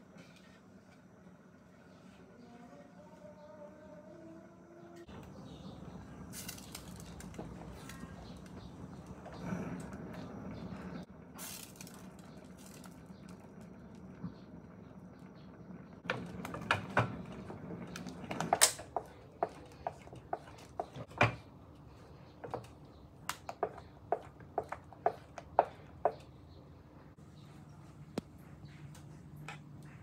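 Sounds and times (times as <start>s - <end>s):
wooden spatula knocking on pot: 23.4s - 26.3s.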